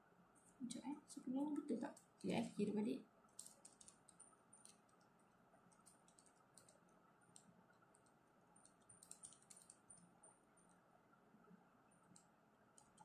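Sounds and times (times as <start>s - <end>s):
calculator keys clicking: 3.4s - 5.0s, 5.7s - 10.0s.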